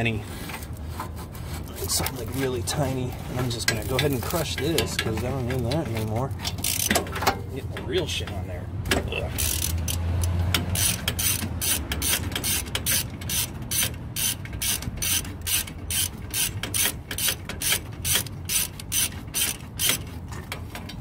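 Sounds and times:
ratchet wrench clicking: 0:03.7 - 0:07.2, 0:09.3 - 0:20.2.

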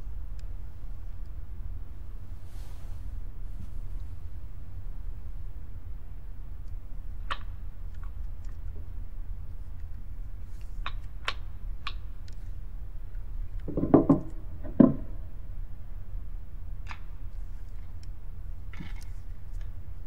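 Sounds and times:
low steady hum: 0:00.0 - 0:20.0
knocks: 0:13.7 - 0:15.2.

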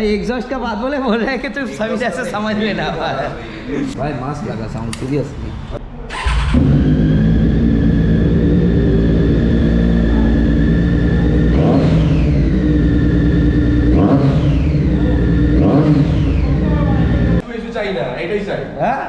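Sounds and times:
motorcycle engine idling and revving: 0:06.1 - 0:17.4.

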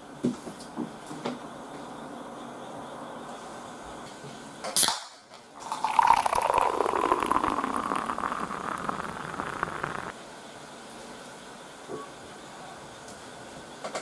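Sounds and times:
can tab cracking open with hiss: 0:04.8 - 0:10.1
beer pouring into a glass: 0:05.6 - 0:10.2.

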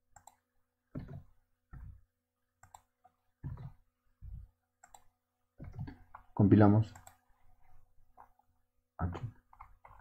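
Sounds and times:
computer keyboard typing: 0:00.1 - 0:00.4, 0:02.6 - 0:03.8, 0:04.8 - 0:06.2, 0:09.4 - 0:10.0
mouse clicks: 0:00.1 - 0:00.4, 0:02.6 - 0:03.7, 0:04.8 - 0:05.1, 0:06.9 - 0:07.2.

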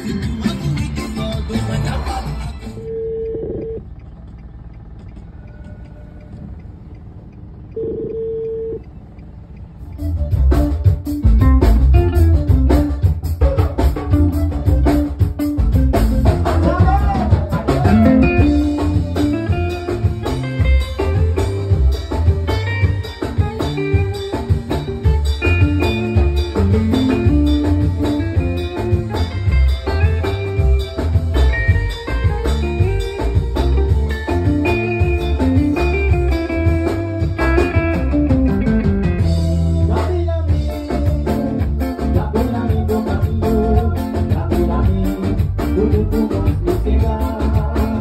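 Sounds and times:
live band playing: 0:00.0 - 0:02.8, 0:10.0 - 0:48.0
heavy bass line: 0:00.0 - 0:05.4, 0:06.1 - 0:48.0
short held notes: 0:09.9 - 0:39.9
drum hits: 0:10.0 - 0:48.0.

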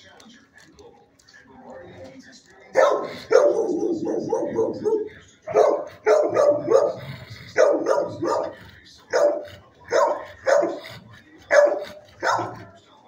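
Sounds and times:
dogs barking: 0:02.7 - 0:12.8.

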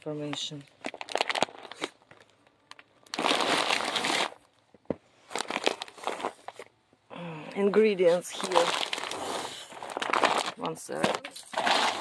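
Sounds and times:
dog food bag rustling: 0:08.1 - 0:12.0.

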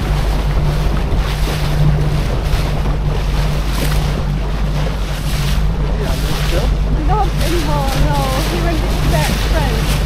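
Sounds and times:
boat engine running: 0:00.0 - 0:10.0
water rushing past hull: 0:00.0 - 0:10.0
wind buffeting microphone: 0:00.0 - 0:10.0.

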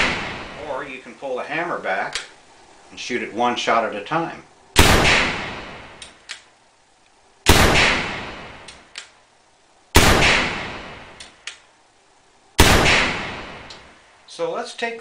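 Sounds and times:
air pistol shots: 0:00.0 - 0:00.8, 0:04.8 - 0:06.3, 0:07.5 - 0:08.9, 0:10.0 - 0:11.4, 0:12.6 - 0:14.0.

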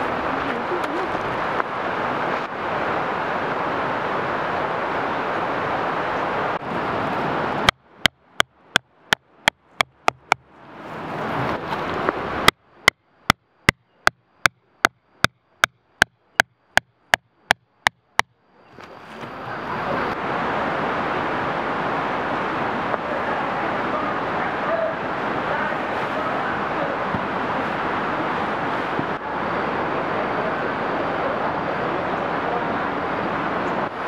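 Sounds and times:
steady rushing noise: 0:00.0 - 0:34.0
mallet knocking tent peg: 0:07.7 - 0:10.4, 0:12.5 - 0:18.4.

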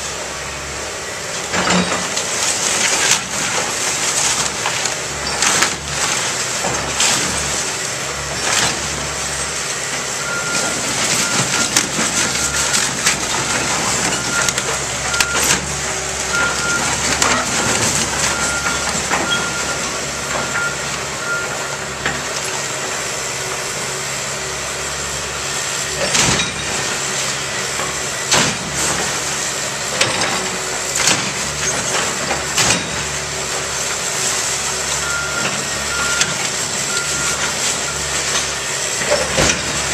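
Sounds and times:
excavator diesel engine running: 0:00.0 - 0:39.9
wood debris cracking and crashing: 0:01.5 - 0:21.0, 0:26.0 - 0:39.9
backup alarm beeping: 0:10.2 - 0:12.8, 0:14.0 - 0:15.7, 0:16.3 - 0:17.0, 0:17.6 - 0:21.8, 0:35.0 - 0:38.0.

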